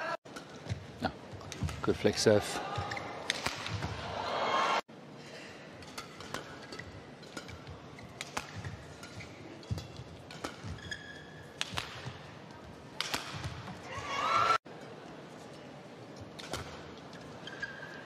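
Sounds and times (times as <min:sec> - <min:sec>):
rackets striking shuttlecock: 0:02.8 - 0:04.0, 0:05.8 - 0:12.2, 0:13.0 - 0:13.7
crowd reaction: 0:04.0 - 0:04.8
shoe squeaking on court: 0:10.4 - 0:11.5, 0:17.4 - 0:18.0.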